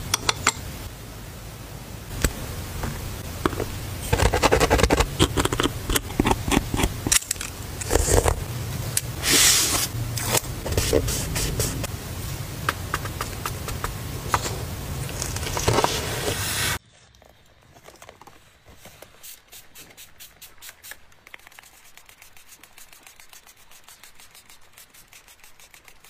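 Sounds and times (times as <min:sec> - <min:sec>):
handling noise with clicks: 0:02.1 - 0:09.1, 0:12.6 - 0:22.3
spray bottle spritzes: 0:19.2 - 0:26.0.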